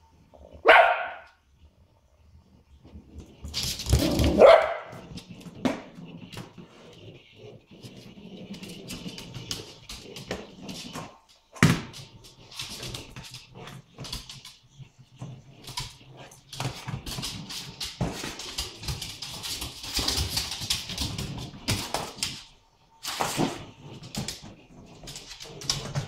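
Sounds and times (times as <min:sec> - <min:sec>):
ball knocking on wooden floor: 0:03.2 - 0:14.4.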